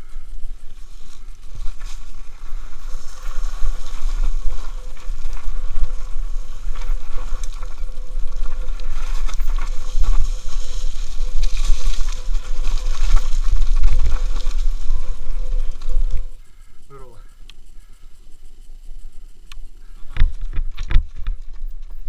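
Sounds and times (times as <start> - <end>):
wind rumble on microphone: 0.0 - 16.4, 18.5 - 22.0
tyres over loose dirt and stones: 0.0 - 22.0.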